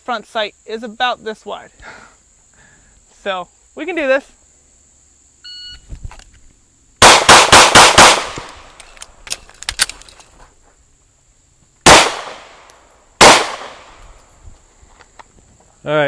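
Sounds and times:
pistol shots: 7.0 - 8.7, 11.8 - 12.6, 13.2 - 13.9.

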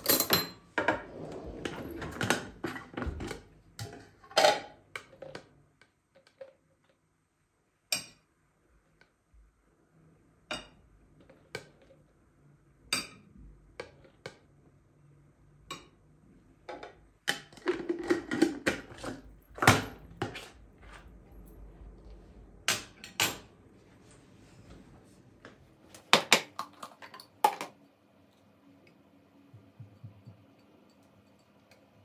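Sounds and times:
objects clattering: 0.0 - 5.4, 16.7 - 21.6
hard objects knocking: 29.6 - 30.7.

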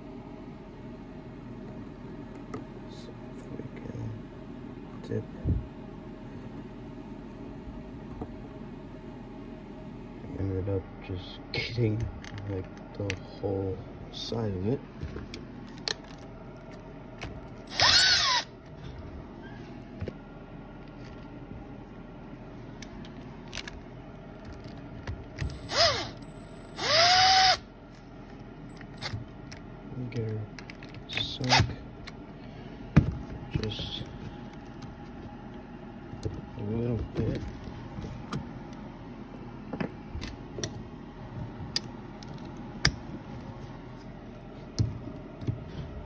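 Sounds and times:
cordless drill driving a bolt: 17.7 - 18.5, 25.4 - 27.6.

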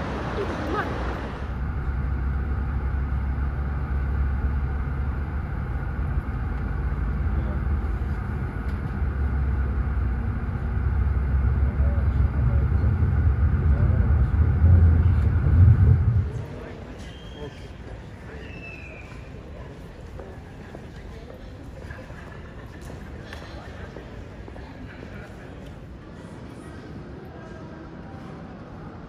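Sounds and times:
vehicle interior rumble: 0.0 - 16.8.

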